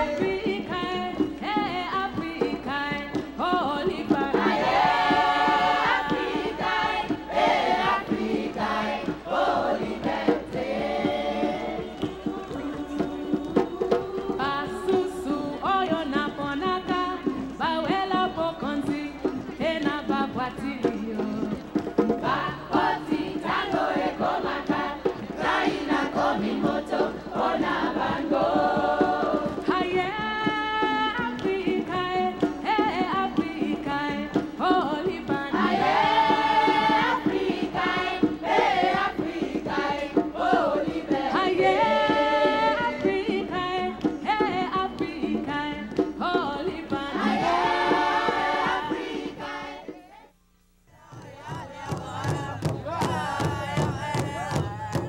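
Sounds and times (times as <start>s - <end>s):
mixed choir singing in harmony: 0.0s - 1.4s, 3.1s - 15.7s, 21.8s - 29.8s, 34.4s - 45.5s, 46.2s - 50.3s, 50.9s - 55.0s.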